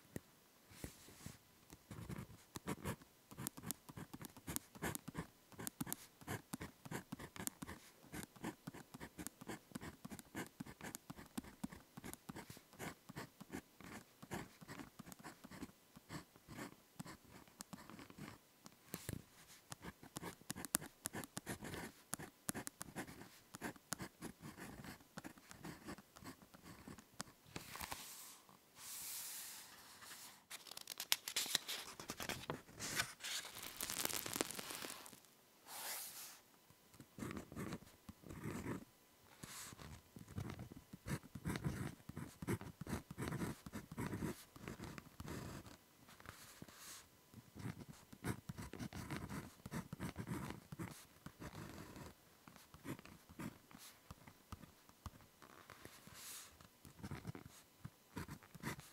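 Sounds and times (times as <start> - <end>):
ballpoint pen writing on paper: 1.9 - 18.4, 19.7 - 27.3, 40.3 - 45.7.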